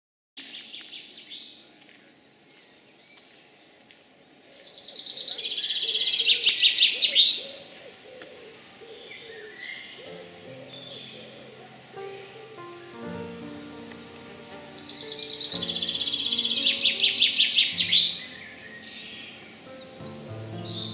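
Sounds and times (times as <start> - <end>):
rapid high birdsong: 0.4 - 20.9
steady music tones: 10.1 - 20.9.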